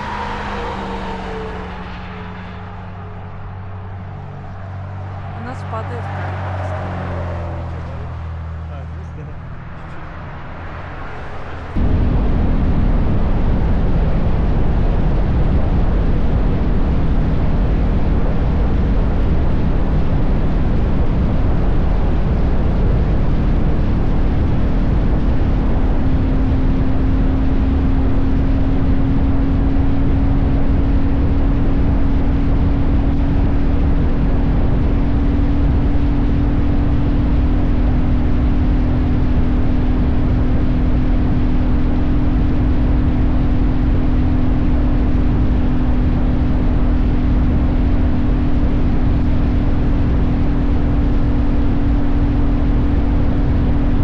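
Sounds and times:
motorcycle engine cruising: 0:00.0 - 0:54.0
wind rush on microphone: 0:09.4 - 0:54.0.

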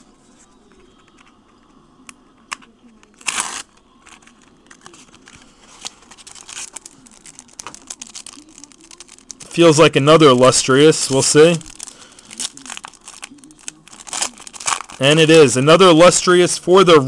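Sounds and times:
foil wrapper tearing: 0:03.0 - 0:15.6
foil wrapper crinkling: 0:03.1 - 0:15.6.

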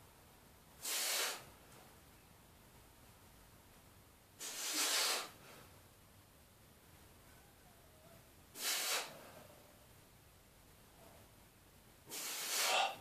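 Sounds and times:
forceful hissing breath: 0:00.8 - 0:01.5, 0:04.4 - 0:05.6, 0:08.5 - 0:09.4, 0:12.0 - 0:13.0.

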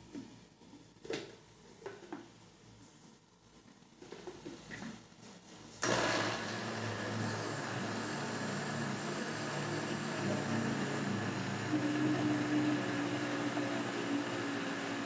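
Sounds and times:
blender running: 0:05.8 - 0:15.0.

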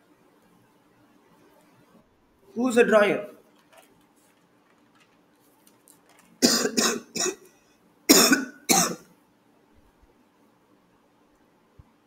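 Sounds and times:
person coughing: 0:06.4 - 0:07.5, 0:08.1 - 0:09.1.

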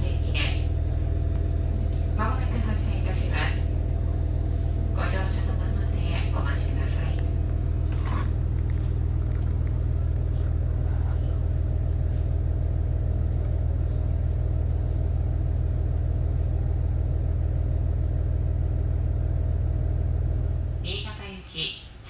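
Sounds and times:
railcar engine idling: 0:00.0 - 0:22.0.

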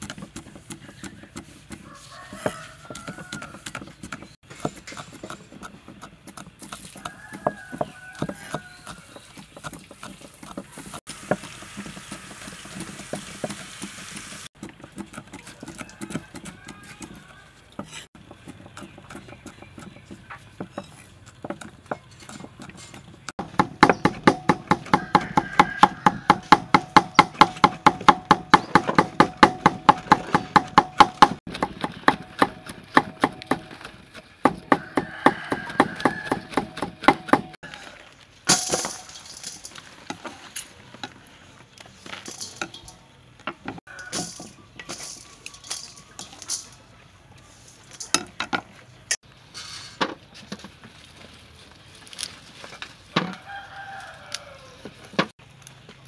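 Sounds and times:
knife chopping on wood: 0:20.6 - 0:37.6.

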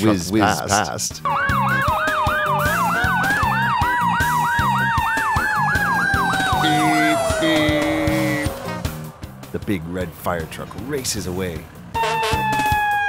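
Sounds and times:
background music with steady beat: 0:00.0 - 0:10.0
fire truck siren yelping: 0:01.2 - 0:09.4, 0:11.9 - 0:13.0
siren tone sliding down: 0:01.3 - 0:09.3.

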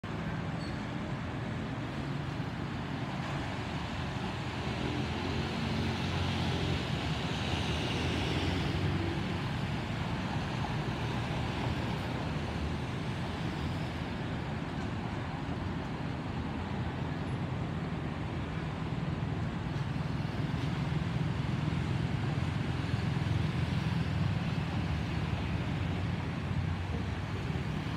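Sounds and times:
jet aircraft rumble overhead: 0:00.0 - 0:27.9
road traffic noise: 0:00.0 - 0:27.9.

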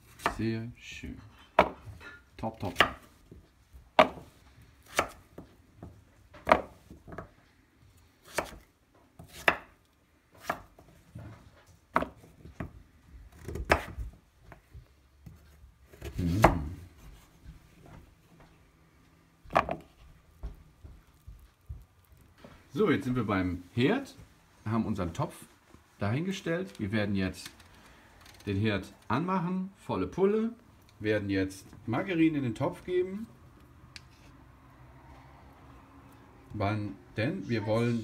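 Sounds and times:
knife chopping on wooden board: 0:01.6 - 0:02.0, 0:02.6 - 0:03.1, 0:04.0 - 0:07.3, 0:08.2 - 0:08.6, 0:09.2 - 0:09.8, 0:10.4 - 0:10.8, 0:11.9 - 0:12.7, 0:13.3 - 0:14.0, 0:16.0 - 0:16.7.

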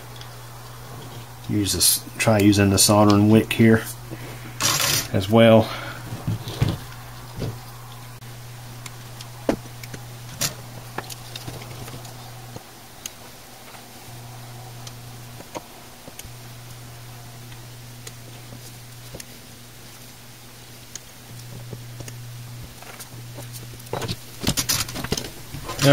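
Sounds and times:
steady low hum: 0:00.0 - 0:25.9
soldering tool clicks and taps: 0:20.9 - 0:22.2.

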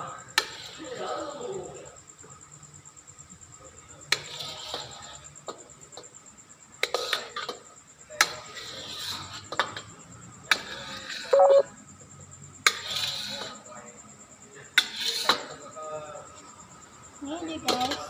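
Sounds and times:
spatula scraping wok: 0:04.1 - 0:05.4, 0:08.3 - 0:09.6, 0:10.5 - 0:11.6, 0:12.6 - 0:13.6, 0:14.8 - 0:15.5
brief ringing tone: 0:11.4 - 0:11.7.

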